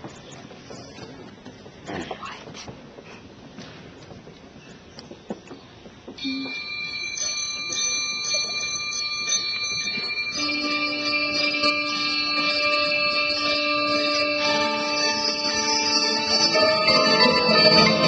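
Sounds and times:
bell-like mallet keyboard notes: 6.2s - 18.0s
ringing held chord: 6.2s - 18.0s
lower sustained notes: 10.3s - 18.0s.

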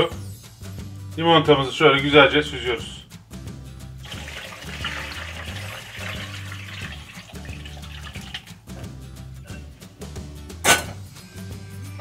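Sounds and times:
liquid pouring and splashing: 4.0s - 8.7s.

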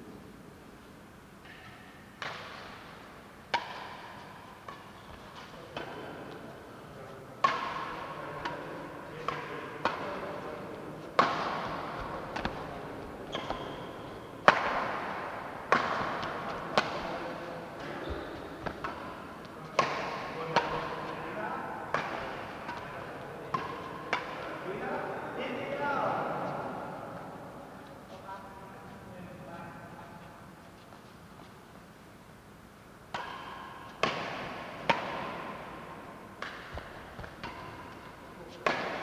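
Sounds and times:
rackets striking shuttlecock: 1.4s - 6.5s, 7.4s - 24.6s, 33.1s - 39.0s.

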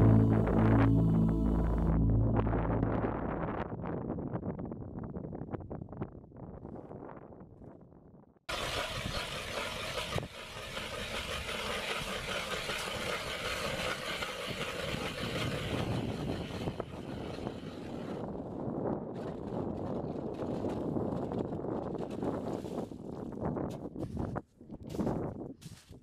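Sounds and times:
ice auger grinding ice: 8.5s - 18.5s.

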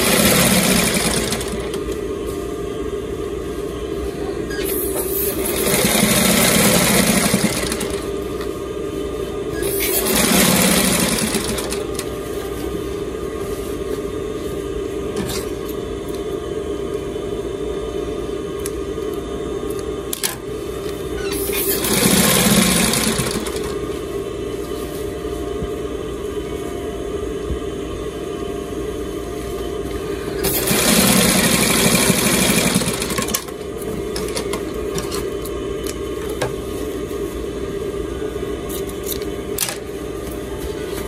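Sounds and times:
sewing machine motor humming: 0.0s - 2.0s, 4.5s - 8.2s, 9.6s - 12.2s, 21.2s - 23.8s, 30.4s - 35.3s.

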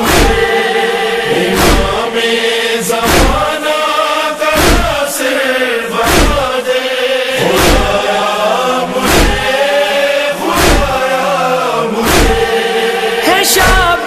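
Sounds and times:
heavy beat thumps: 0.0s - 0.8s, 1.5s - 2.1s, 3.0s - 3.5s, 4.6s - 5.0s, 6.0s - 6.5s, 7.4s - 8.0s, 9.0s - 9.5s, 10.5s - 11.0s, 12.0s - 12.6s
chorus chanting: 0.0s - 14.0s.

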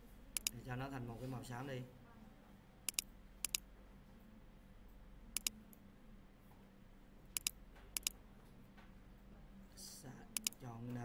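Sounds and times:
faint steady hum: 0.0s - 11.0s
computer mouse clicks: 0.4s - 0.6s, 2.9s - 3.6s, 5.4s - 5.6s, 7.3s - 8.2s, 10.4s - 10.6s.

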